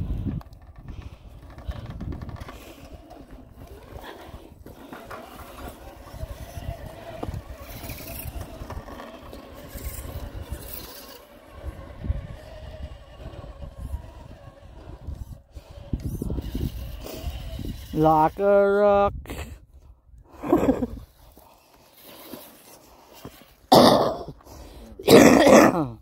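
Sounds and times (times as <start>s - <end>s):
electric motor whining: 0.0s - 19.0s.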